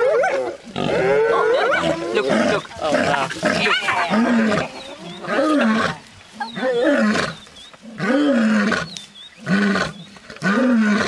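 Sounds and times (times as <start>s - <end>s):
lioness roaring: 0.0s - 11.0s.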